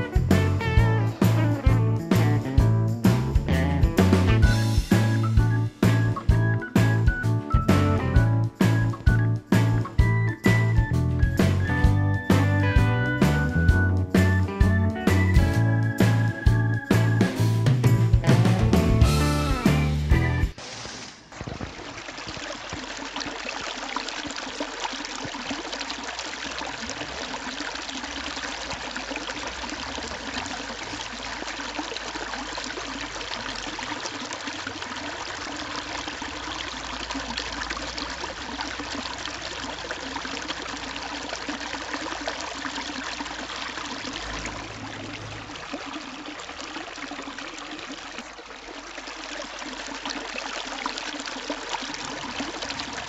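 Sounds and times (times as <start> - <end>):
fountain water splashing: 19.2 - 53.0.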